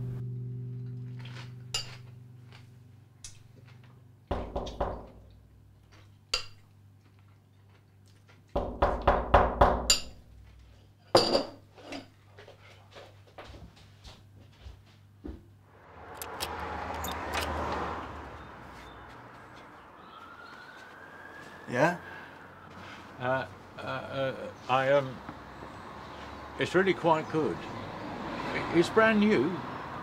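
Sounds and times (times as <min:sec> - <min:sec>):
dishes and cutlery clattering: 0:11.1 - 0:12.1.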